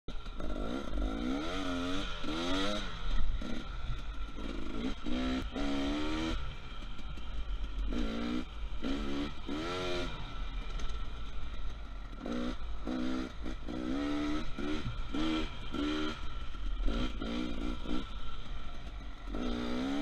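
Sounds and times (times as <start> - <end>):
dirt bike engine revving: 0.1 - 20.0.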